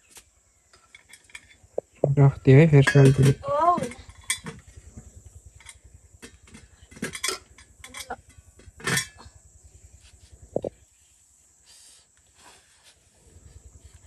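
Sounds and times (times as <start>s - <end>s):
utensils and dishes clinking: 2.8s - 3.4s, 6.9s - 9.2s.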